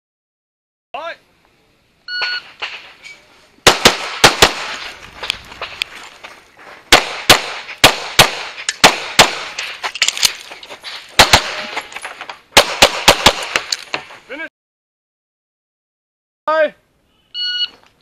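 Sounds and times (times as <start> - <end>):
rapid pistol shots: 3.6 - 4.9, 6.9 - 9.8, 11.2 - 11.7, 12.6 - 13.7.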